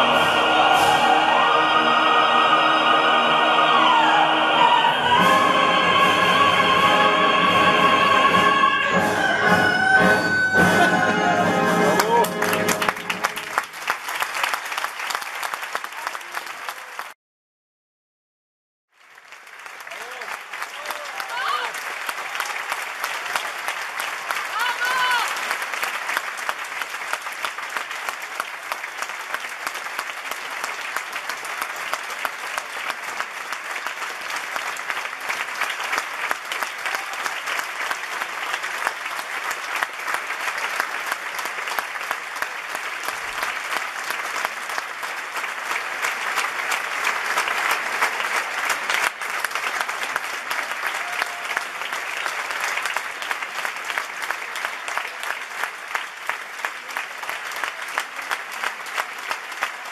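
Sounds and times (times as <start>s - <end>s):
large audience applauding: 0.0s - 17.2s, 18.9s - 59.9s.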